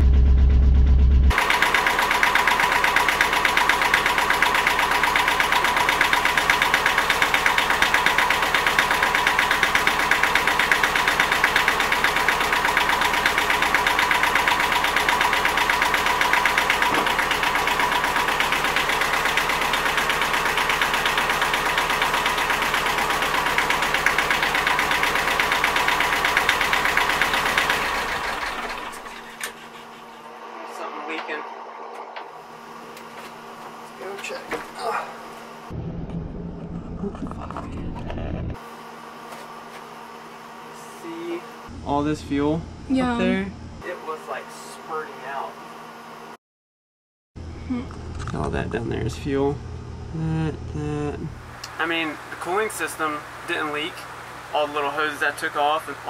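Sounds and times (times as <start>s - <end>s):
diesel engine running: 0.0s - 39.0s, 39.8s - 45.5s.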